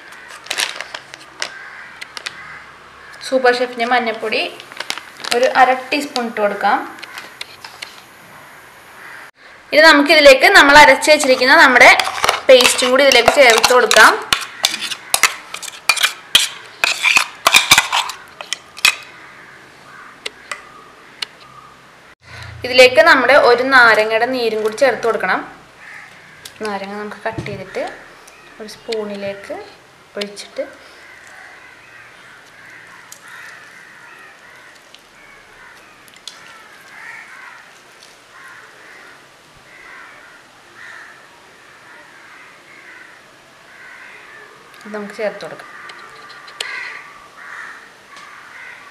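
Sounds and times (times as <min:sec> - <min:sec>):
crows cawing: 0:00.0 - 0:03.3, 0:07.0 - 0:07.4, 0:09.0 - 0:09.7, 0:14.3 - 0:15.5, 0:18.0 - 0:21.7, 0:25.8 - 0:26.7, 0:30.8 - 0:44.9, 0:45.5 - 0:48.9.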